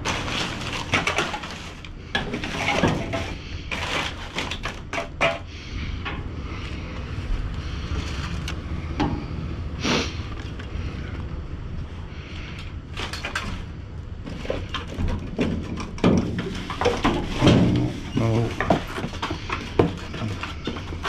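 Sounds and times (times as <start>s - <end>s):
plastic bags and cardboard rustling: 0.0s - 5.8s, 6.4s - 8.8s, 11.9s - 21.0s
steady low rumble: 5.4s - 18.7s.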